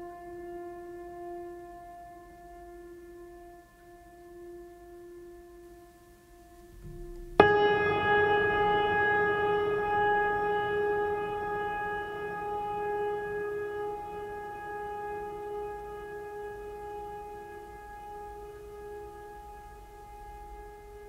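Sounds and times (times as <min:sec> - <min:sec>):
sustained chord: 0:00.0 - 0:21.0.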